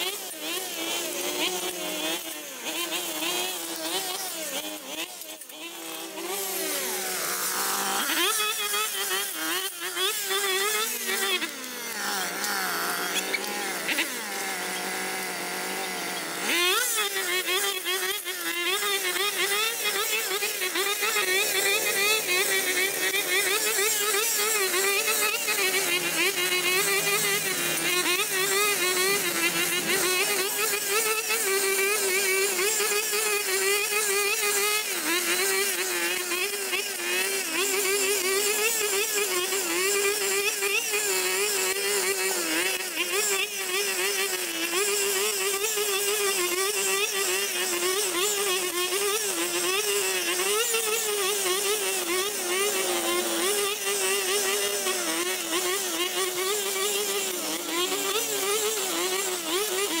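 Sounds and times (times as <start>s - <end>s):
brush cutter engine running: 0.0s - 60.0s.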